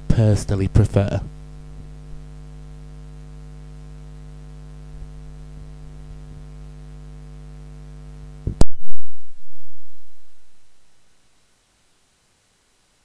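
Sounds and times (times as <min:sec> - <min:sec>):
electrical mains hum: 0:00.0 - 0:13.0
loud click: 0:08.5 - 0:09.3.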